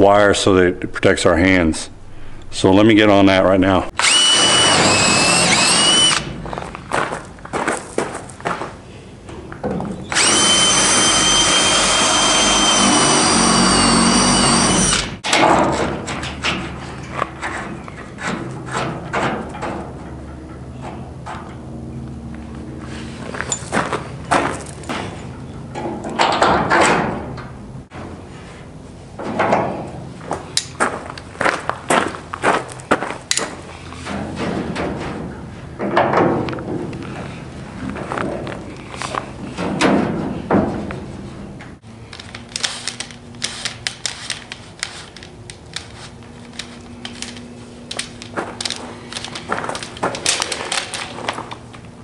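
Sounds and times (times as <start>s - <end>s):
faint steady hum: 0.0s - 7.4s
gritty crunches: 6.1s - 8.8s, 42.2s - 51.9s
scrapes and rustles: 42.1s - 51.8s.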